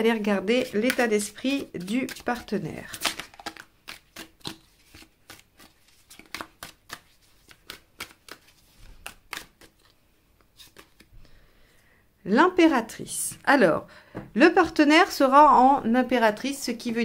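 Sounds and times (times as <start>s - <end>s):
cards being shuffled: 0.6s - 11.1s.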